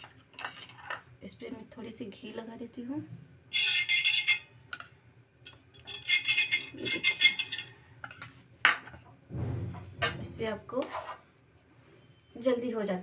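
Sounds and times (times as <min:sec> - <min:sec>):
steel spoon scraping a griddle: 0:03.5 - 0:04.9, 0:05.5 - 0:08.3, 0:10.7 - 0:11.3.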